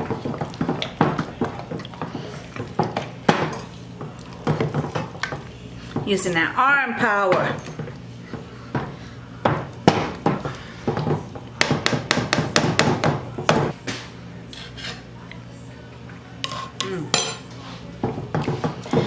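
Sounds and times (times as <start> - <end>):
potato masher pounding in a pot: 8.7 - 13.7.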